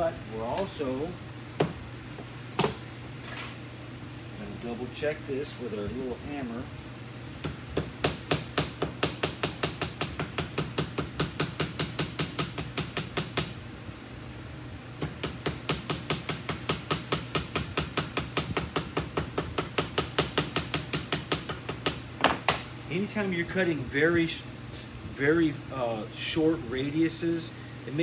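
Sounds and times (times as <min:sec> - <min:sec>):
hammer tapping on sheet metal: 0:08.0 - 0:13.6, 0:15.0 - 0:22.0.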